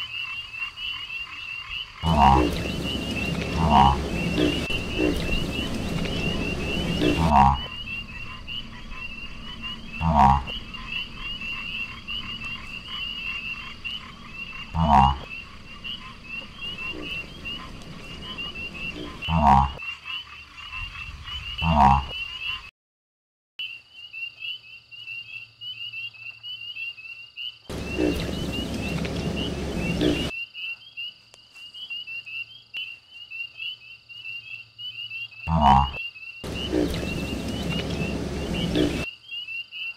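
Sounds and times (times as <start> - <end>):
frog croaks: 0.0 - 22.7, 23.6 - 30.4, 32.8 - 39.9
frogs chirping trill: 0.0 - 22.7, 23.6 - 39.9
rushing noise: 2.0 - 10.0, 27.7 - 30.3, 36.4 - 39.1.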